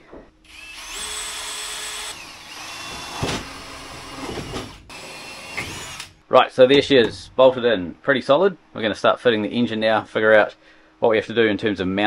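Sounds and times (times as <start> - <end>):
cordless drill whining: 0.5 - 6.2.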